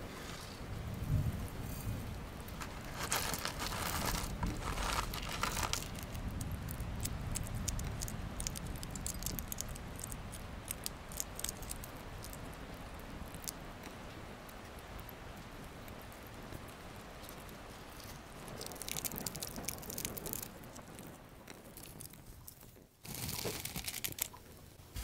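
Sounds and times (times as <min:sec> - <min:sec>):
plastic bag crinkling: 0:02.6 - 0:10.0, 0:23.0 - 0:24.4
pods cracking open: 0:02.6 - 0:12.4, 0:18.5 - 0:20.5, 0:23.1 - 0:24.4.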